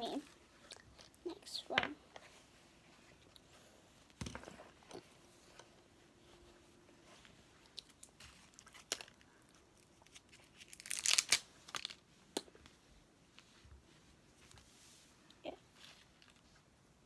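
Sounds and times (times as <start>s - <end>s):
plastic wrapper crinkling: 7.8s - 12.0s.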